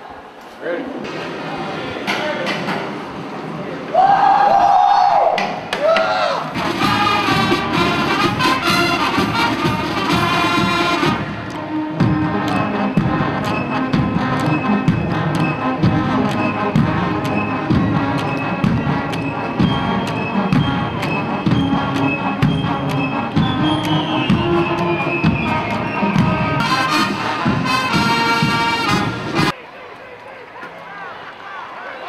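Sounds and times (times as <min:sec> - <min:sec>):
drums with a steady beat: 0:05.4 - 0:29.5
brass horns holding notes: 0:06.5 - 0:29.6.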